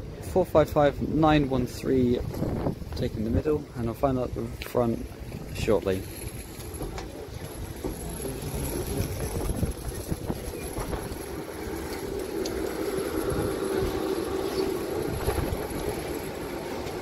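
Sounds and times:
low irregular rumble: 0.0 - 17.0
train equipment humming: 0.0 - 17.0.

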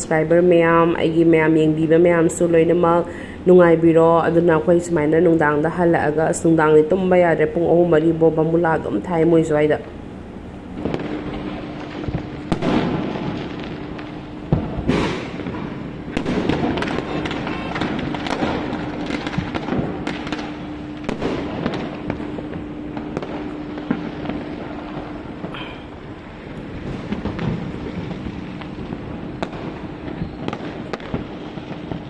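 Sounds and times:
fireworks crackling and banging: 10.6 - 32.0
loud firework reports: 10.8 - 32.0.

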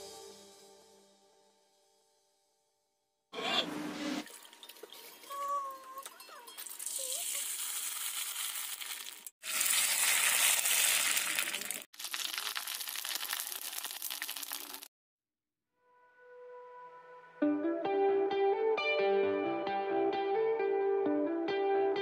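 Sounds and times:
oil sizzling and crackling: 6.5 - 14.9.

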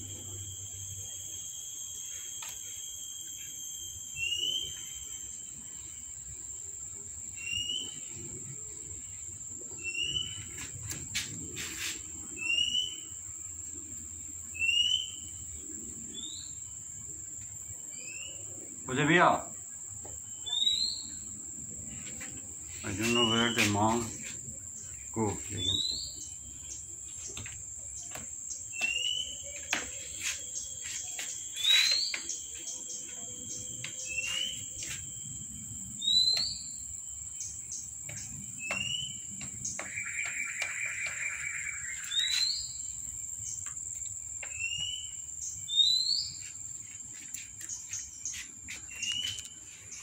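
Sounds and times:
high-pitched insect trill: 0.0 - 50.0
bird whistled chirp: 0.1 - 5.4, 7.4 - 8.0, 9.8 - 10.6, 12.3 - 13.1, 14.5 - 15.4, 20.4 - 21.3, 22.8 - 24.1, 25.2 - 26.3, 28.7 - 35.0, 36.0 - 36.8, 38.6 - 42.9, 44.5 - 46.4, 48.9 - 49.5.

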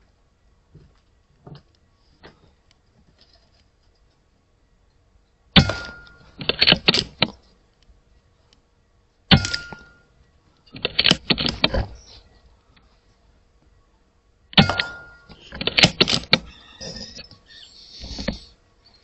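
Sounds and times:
metallic clicks of rifle action: 10.6 - 11.7.

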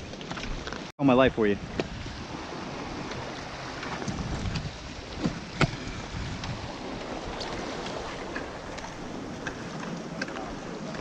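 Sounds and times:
wind on microphone: 0.0 - 11.0
surf washing against rocks: 0.6 - 11.0.

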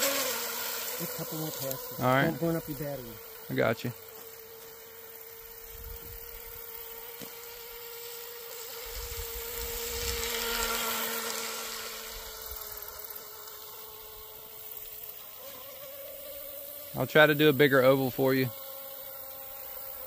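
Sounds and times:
rc boat motor whine: 0.0 - 3.7, 8.8 - 15.2.

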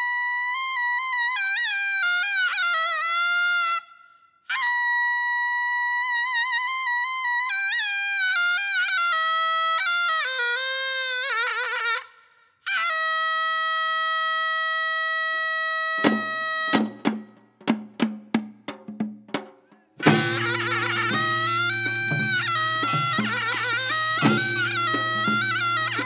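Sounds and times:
shawm playing a melody: 15.8 - 26.0
drum strokes: 16.0 - 26.0.

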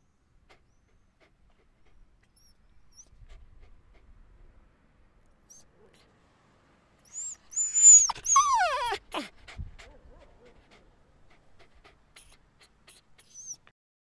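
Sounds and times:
puppy whimpering: 7.1 - 9.4, 11.6 - 13.6.

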